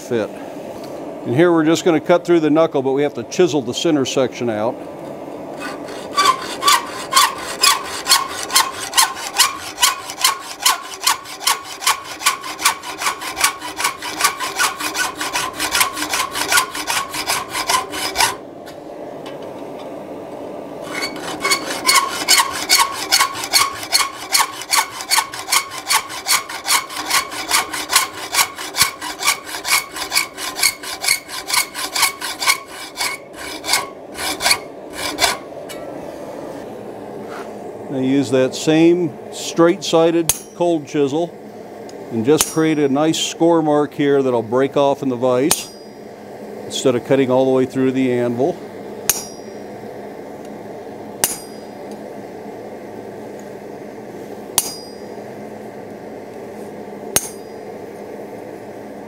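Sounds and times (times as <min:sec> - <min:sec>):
hacksaw cutting metal: 0:05.6 - 0:18.4, 0:20.8 - 0:35.9, 0:45.5 - 0:45.8, 0:49.1 - 0:49.5, 0:51.2 - 0:51.6, 0:54.6 - 0:55.0, 0:57.2 - 0:57.5.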